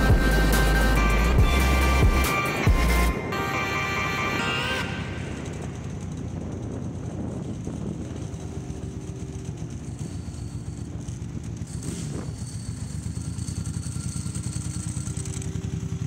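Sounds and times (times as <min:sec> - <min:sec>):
background music: 0:00.0 - 0:06.0
motorcycle engine rumble: 0:00.0 - 0:16.0
road and wind noise: 0:00.0 - 0:16.0.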